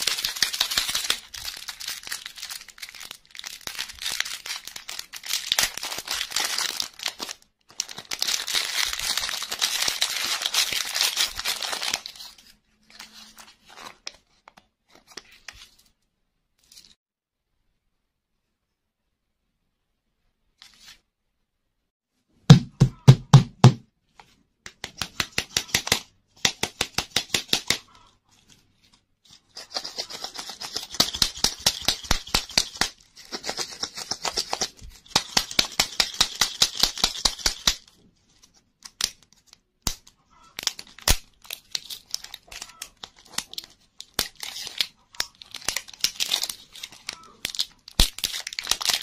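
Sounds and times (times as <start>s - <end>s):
foil wrapper crinkling and tearing: 0.0s - 14.1s, 29.5s - 37.8s, 38.8s - 49.0s.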